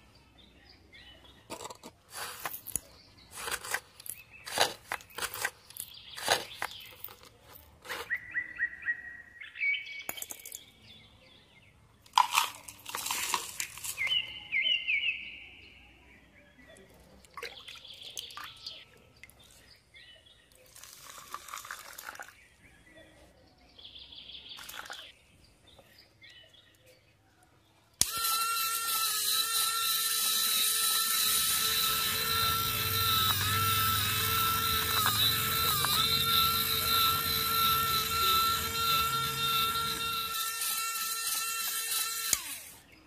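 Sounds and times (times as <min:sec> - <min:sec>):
small electric motor whine: 0:28.0 - 0:43.0.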